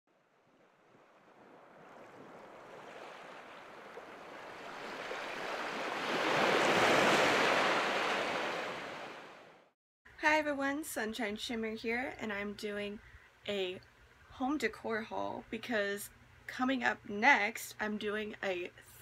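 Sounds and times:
ocean wave washing: 0.5s - 9.7s.

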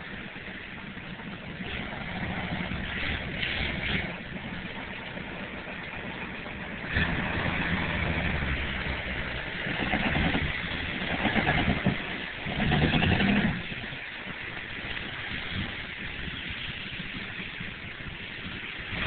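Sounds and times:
pickup truck engine revving: 1.5s - 5.7s, 6.6s - 13.9s.

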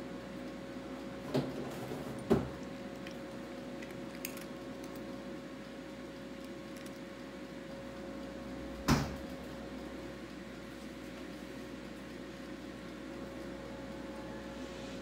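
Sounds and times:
steady electrical hum: 0.0s - 15.0s
cat chewing lettuce: 2.5s - 7.8s.

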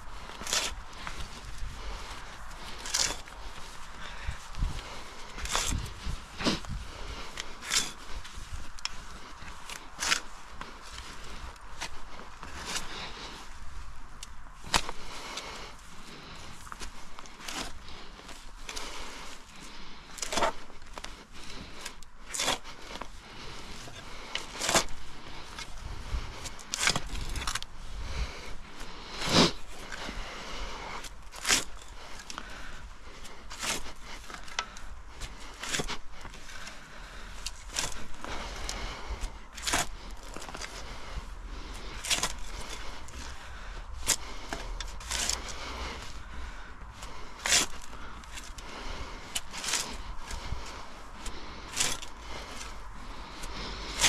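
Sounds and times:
shovel scraping soil: 0.0s - 13.4s, 14.2s - 46.4s, 47.0s - 54.0s
spade cutting into soil: 0.3s - 1.0s, 2.8s - 3.3s, 5.4s - 6.6s, 7.6s - 8.0s, 22.3s - 22.6s, 24.4s - 25.0s, 26.7s - 27.6s, 44.0s - 45.5s.

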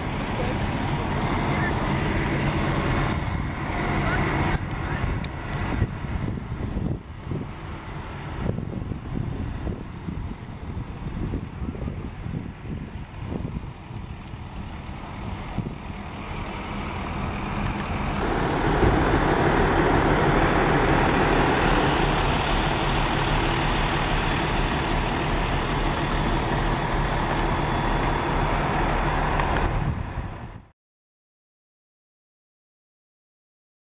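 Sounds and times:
vehicle engine idling: 0.0s - 30.6s
road traffic noise: 0.0s - 30.7s.

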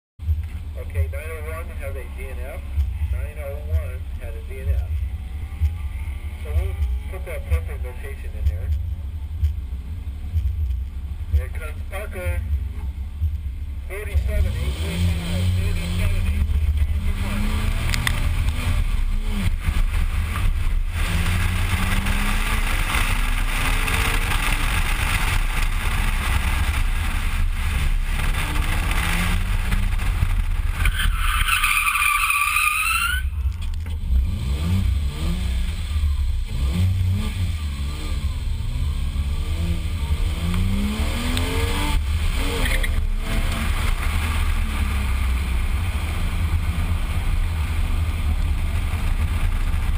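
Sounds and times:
car engine revving: 0.2s - 49.9s
tyres squealing: 30.8s - 33.4s.

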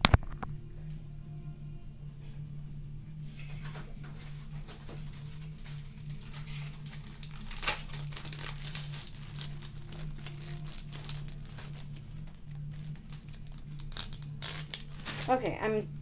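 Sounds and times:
low hum: 0.0s - 16.0s
plastic packaging rustling: 4.1s - 15.6s.

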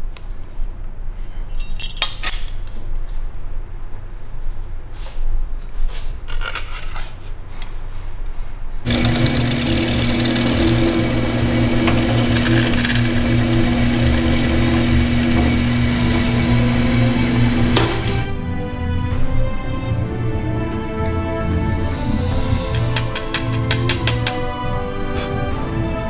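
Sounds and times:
drill press humming: 8.9s - 18.3s.

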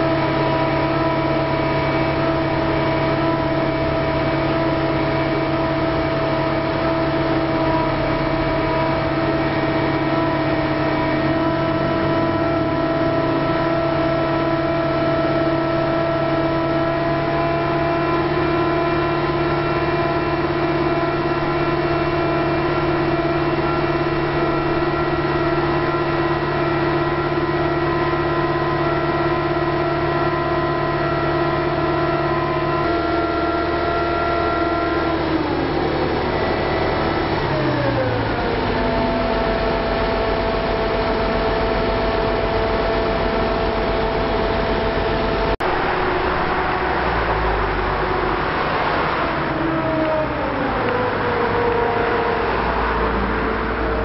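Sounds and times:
heavy diesel engine running: 0.0s - 54.0s.

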